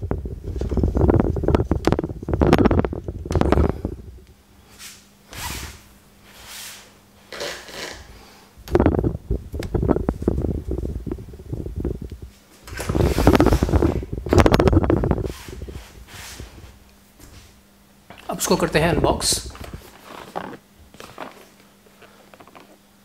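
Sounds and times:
crackling and knocks: 0.0 - 3.7
faint steady hum: 0.0 - 23.0.

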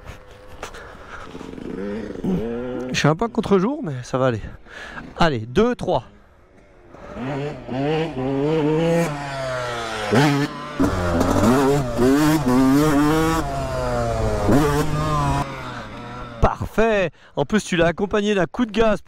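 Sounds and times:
motocross bike engine revving: 1.1 - 3.1, 6.8 - 16.6.

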